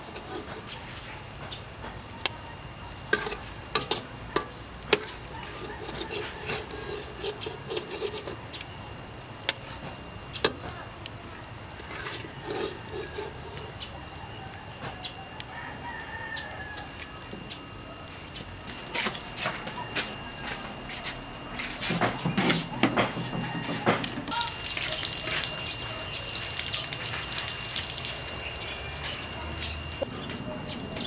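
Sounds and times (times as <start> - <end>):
chickens clucking: 0.0 - 8.5
metal clicks and scrapes from wok: 3.1 - 8.4
rooster crowing: 5.2 - 8.0, 12.5 - 18.1, 19.5 - 21.2, 22.6 - 26.4.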